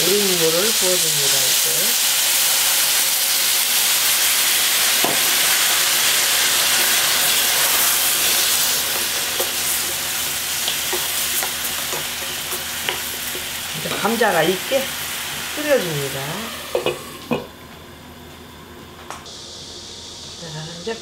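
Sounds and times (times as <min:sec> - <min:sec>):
stock sizzling in a hot pan: 0:00.0 - 0:17.4.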